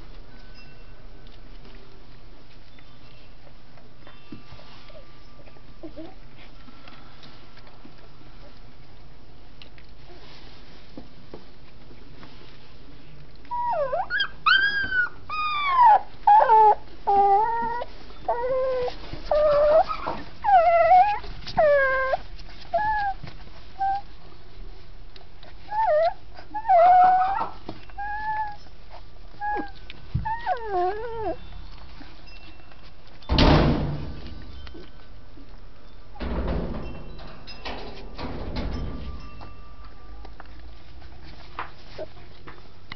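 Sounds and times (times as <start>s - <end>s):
puppies whimpering and whining: 2.4s - 7.0s, 13.4s - 24.5s, 25.1s - 33.2s, 34.0s - 37.6s, 38.7s - 42.7s.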